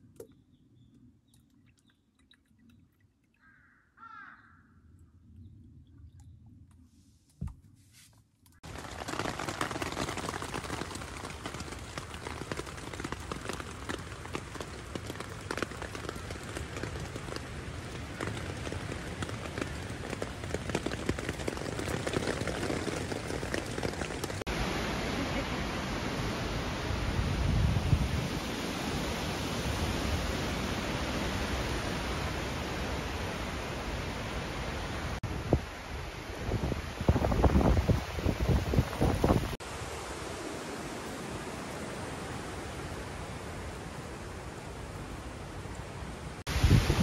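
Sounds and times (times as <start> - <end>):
rain pattering on tent fabric: 8.6 - 25.8.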